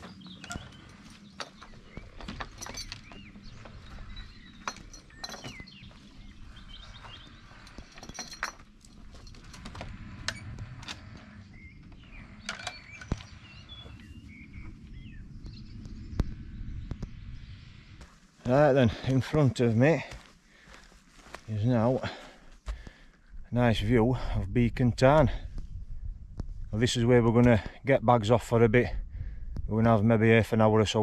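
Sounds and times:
wooden gate opening and shutting: 0.0 - 5.9, 7.1 - 14.0
birds singing: 0.0 - 26.2.

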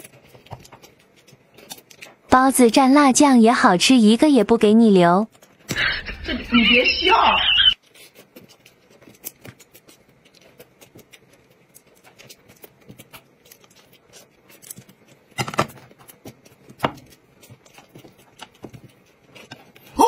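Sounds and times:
soft chewing: 0.0 - 2.3, 7.6 - 20.0.

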